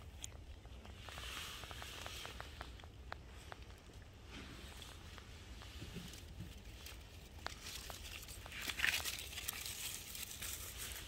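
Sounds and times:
dry leaves rustling and crackling: 4.6s - 11.0s.

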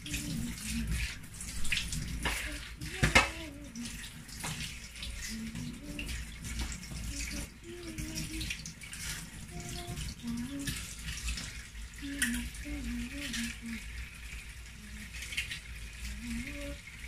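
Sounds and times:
food rinsed under water: 0.0s - 17.0s
tap running into steel sink: 2.2s - 3.5s.

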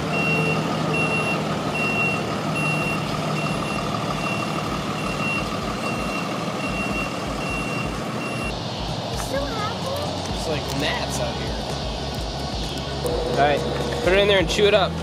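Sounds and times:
truck reversing alarm beeping: 0.0s - 8.6s
vehicle engine running: 0.0s - 15.0s.

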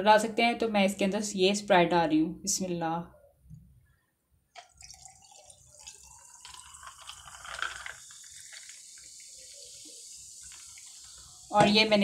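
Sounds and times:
soda pouring over ice: 4.6s - 11.7s
soda fizzing: 4.6s - 12.0s.

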